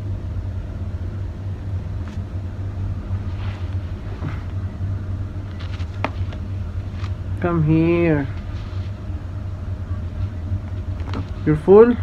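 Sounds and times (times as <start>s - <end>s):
steady low hum: 0.0s - 12.0s
faint rustles: 3.0s - 7.4s, 8.2s - 11.5s.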